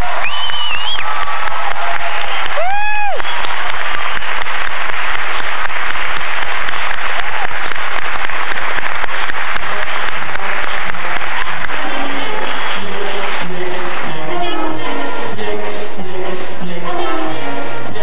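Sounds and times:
high whoop of a cheer: 0:00.0 - 0:03.9
audience applauding: 0:00.0 - 0:15.2.

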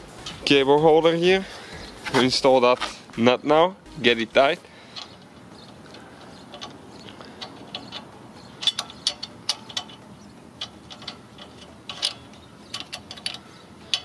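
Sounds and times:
ratchet wrench clicking: 0:04.9 - 0:14.0.

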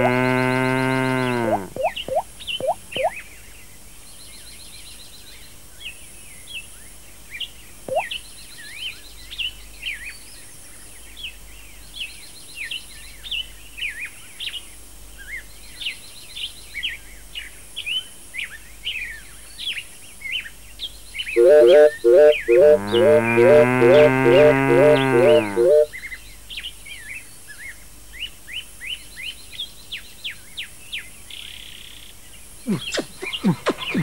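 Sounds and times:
songbirds chirping and trilling: 0:00.0 - 0:34.0.

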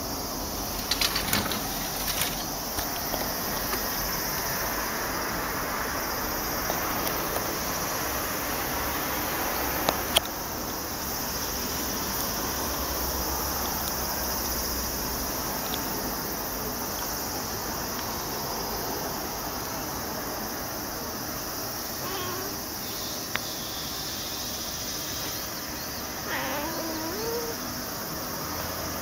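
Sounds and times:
steady hiss: 0:00.0 - 0:28.7
cat meowing: 0:22.0 - 0:22.6, 0:26.2 - 0:27.6.

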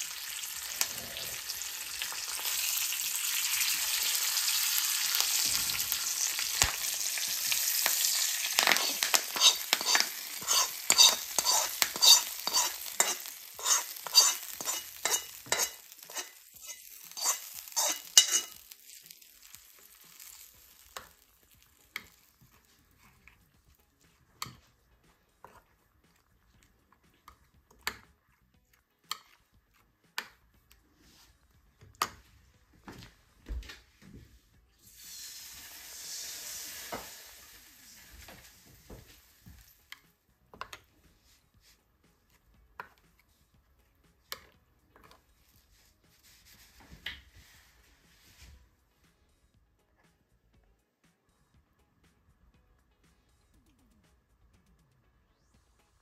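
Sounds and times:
spices sizzling in hot oil: 0:00.0 - 0:22.6, 0:34.8 - 0:39.9
metal spoon scraping a pan: 0:00.0 - 0:23.2, 0:34.9 - 0:38.6.

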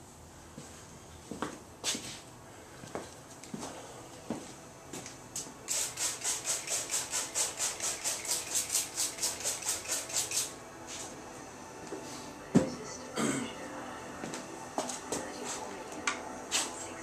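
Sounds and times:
spray bottle spritzing: 0:05.7 - 0:10.6.

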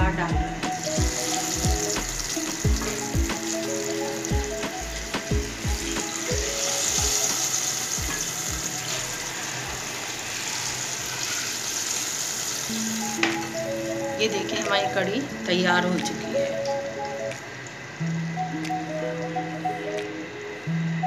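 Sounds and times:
music with thumping beat: 0:00.0 - 0:09.0
oil sizzling in a pot: 0:00.6 - 0:18.5.

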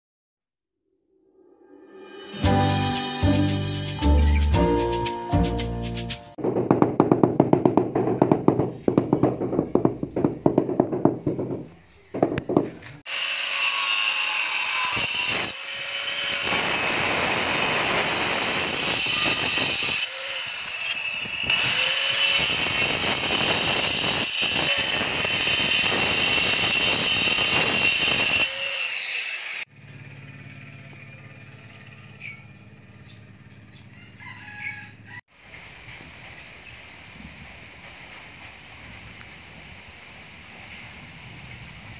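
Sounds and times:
rapid knocking: 0:06.4 - 0:12.8
angle grinder cutting tile: 0:13.0 - 0:29.7.

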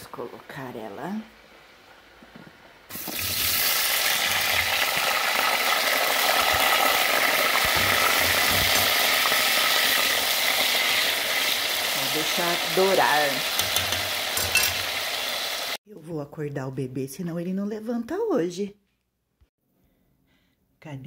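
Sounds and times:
fries sizzling in hot oil: 0:00.0 - 0:15.8.

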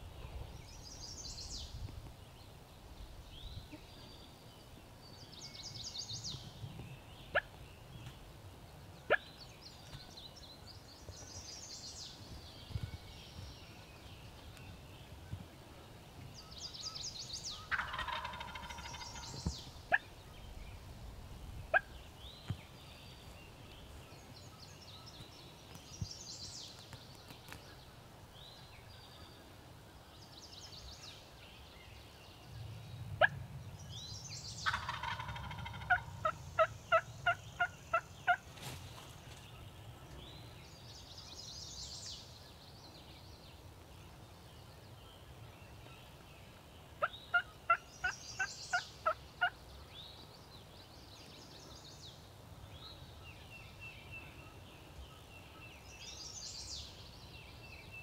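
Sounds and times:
turkey yelping: 0:17.7 - 0:19.0, 0:34.6 - 0:38.4.

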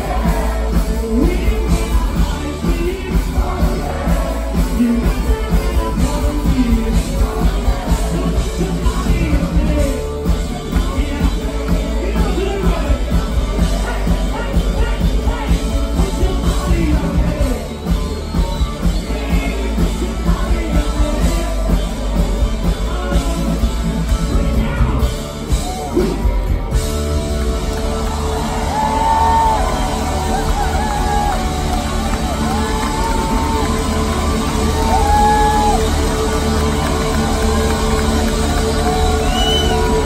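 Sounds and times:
man singing: 0:00.0 - 0:25.3
drums: 0:00.0 - 0:40.0
live rock band playing: 0:00.0 - 0:40.0.

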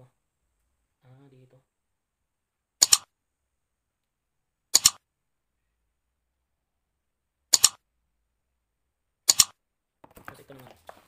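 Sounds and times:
computer mouse double clicks: 0:02.8 - 0:03.1, 0:04.8 - 0:05.0, 0:07.5 - 0:07.8, 0:09.3 - 0:09.6.

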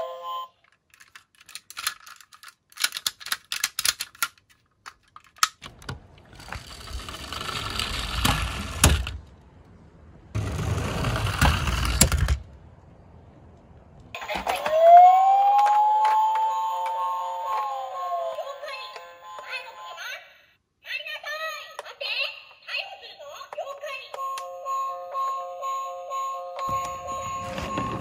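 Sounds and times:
toy cars clattering in a box: 0:00.9 - 0:05.6
toy wheels rolling on wood: 0:05.7 - 0:09.3, 0:10.4 - 0:12.5.

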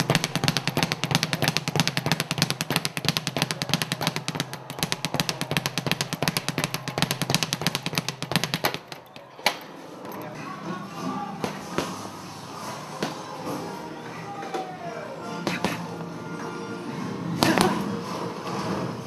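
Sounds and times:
speed bag drumming: 0:00.0 - 0:09.2.

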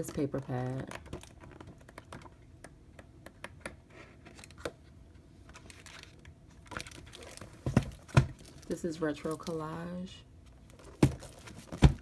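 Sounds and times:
paper pages rustling: 0:05.5 - 0:08.6.

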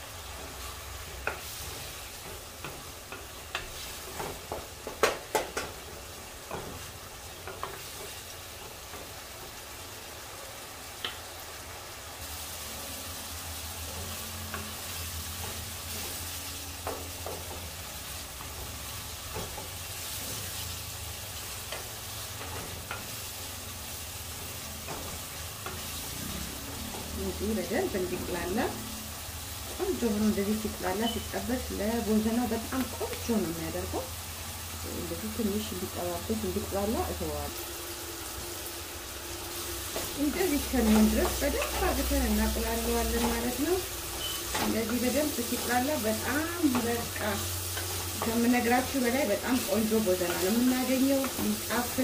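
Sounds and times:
food sizzling in pot: 0:00.0 - 0:52.0.

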